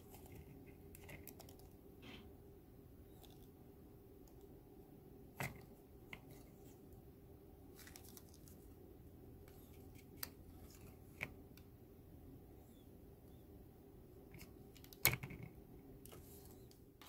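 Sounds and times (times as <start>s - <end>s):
paper rustling: 7.7s - 8.8s.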